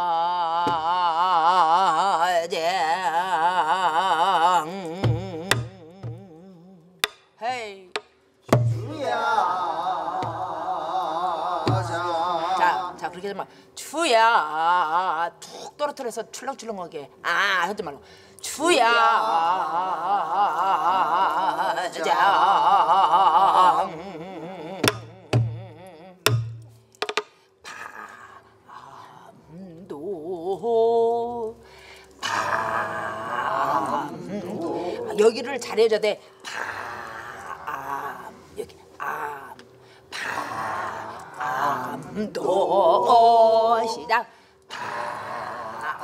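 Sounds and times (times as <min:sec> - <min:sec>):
folk singing with vibrato: 0:00.0 - 0:07.6, 0:08.5 - 0:15.5, 0:18.4 - 0:26.6, 0:27.8 - 0:46.0
barrel drum strokes: 0:08.5 - 0:09.0
drumstick taps: 0:26.3 - 0:27.3.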